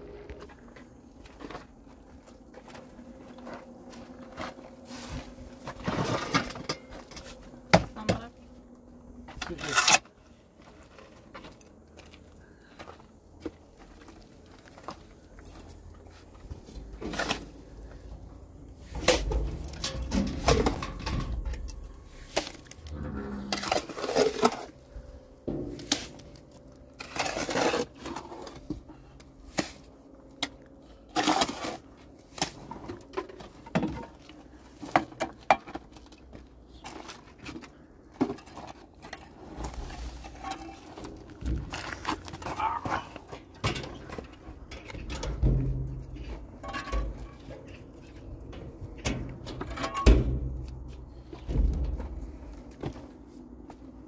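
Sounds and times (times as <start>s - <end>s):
shovel scraping metal wheelbarrow: 4.8s - 7.4s, 9.4s - 10.2s, 16.6s - 17.7s, 18.8s - 24.8s, 25.5s - 26.3s, 27.0s - 28.7s, 31.0s - 33.0s, 38.2s - 48.2s.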